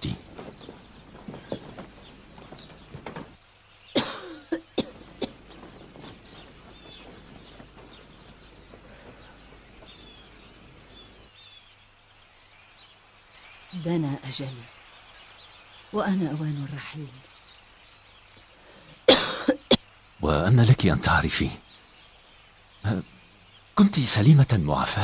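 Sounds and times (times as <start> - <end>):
knocks and rustles of movement: 0.0 - 11.4
small birds chirping: 0.0 - 25.0.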